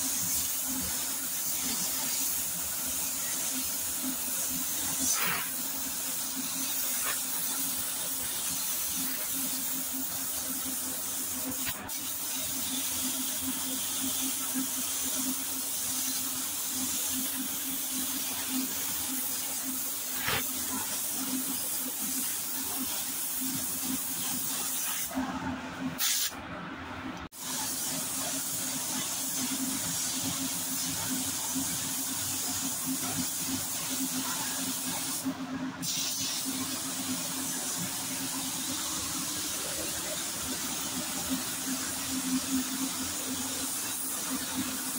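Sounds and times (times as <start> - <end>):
paint spray gun hissing: 0.1 - 13.2, 19.4 - 25.1, 26.0 - 26.4, 27.4 - 32.1, 33.0 - 39.5.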